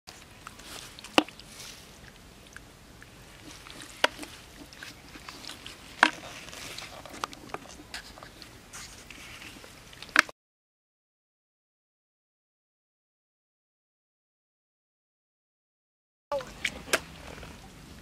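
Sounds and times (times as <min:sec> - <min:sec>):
hands squelching in wet mud: 0:00.1 - 0:10.3
wet mud popping and sucking: 0:00.1 - 0:10.3.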